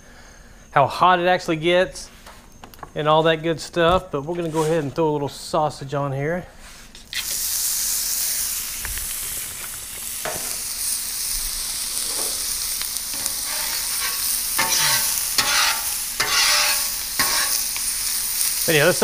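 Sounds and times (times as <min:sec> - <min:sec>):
sausage sizzling in oil: 0:06.9 - 0:19.0
metal spatula scraping griddle: 0:12.0 - 0:17.8.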